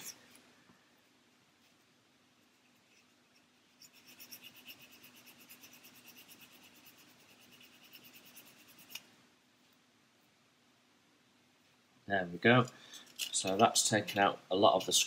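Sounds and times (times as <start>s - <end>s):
sandpaper scratching on plastic: 2.5s - 9.0s.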